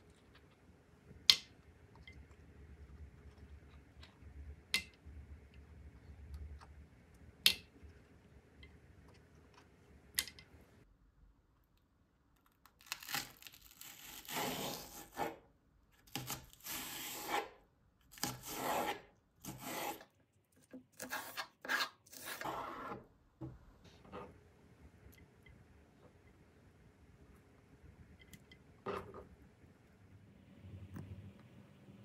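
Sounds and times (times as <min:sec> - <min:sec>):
fork rasping through onion stalks: 0:18.2 - 0:20.1.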